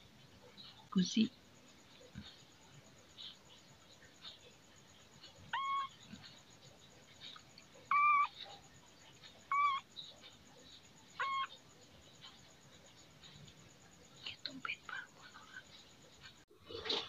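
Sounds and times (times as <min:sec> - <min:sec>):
kitten mewing: 0:05.5 - 0:06.0, 0:07.9 - 0:08.4, 0:09.5 - 0:09.8, 0:11.2 - 0:11.5.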